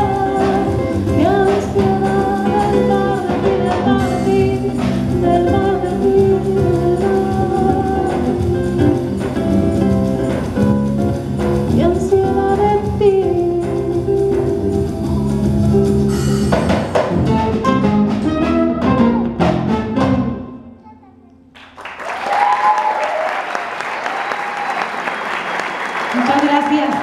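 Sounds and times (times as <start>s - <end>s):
live band playing: 0.0s - 20.8s
audience applause: 21.6s - 27.0s.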